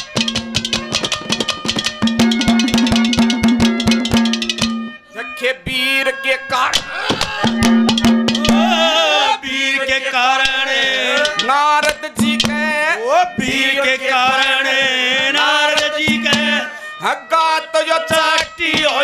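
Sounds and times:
rapid hand-drum strokes: 0.0s - 4.9s, 7.0s - 8.8s, 10.4s - 12.8s, 13.4s - 16.7s, 18.1s - 19.0s
wavering vibrato melody: 1.9s - 5.2s.

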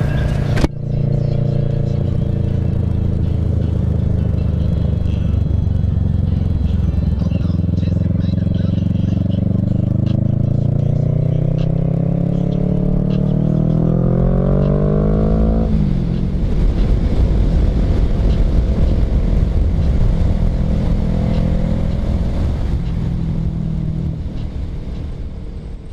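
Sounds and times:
motorcycle engine accelerating: 0.0s - 25.9s
wind rush on microphone: 15.6s - 25.9s.

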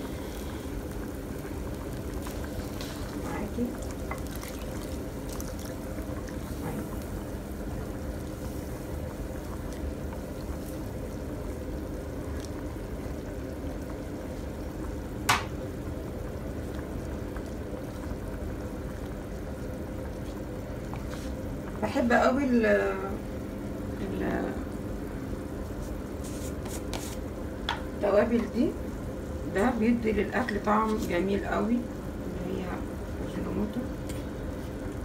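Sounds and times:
steady low hum: 0.0s - 35.0s
thick sauce bubbling: 0.0s - 35.0s
wooden spoon stirring in a pan: 1.4s - 9.3s, 25.6s - 27.3s.

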